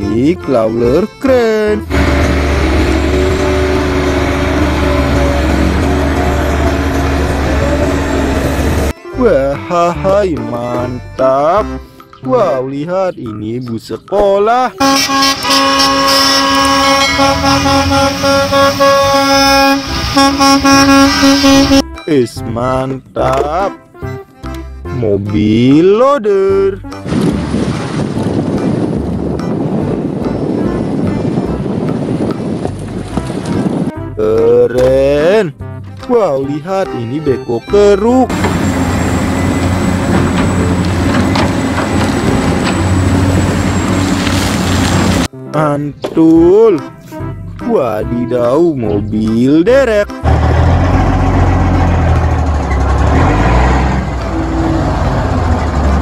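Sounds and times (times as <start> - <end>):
excavator diesel engine running: 1.7 - 9.0, 14.8 - 21.9, 38.0 - 45.3, 50.2 - 56.0
bus horn blasts: 1.8 - 8.9, 14.8 - 22.0, 38.3 - 45.3, 53.2 - 55.4
bucket clanking on rocky earth: 39.5 - 45.3.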